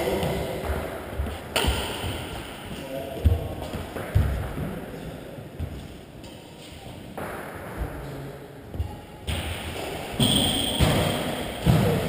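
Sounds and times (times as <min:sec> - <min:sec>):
racket hitting shuttlecock: 0:00.2 - 0:02.6, 0:08.7 - 0:12.0.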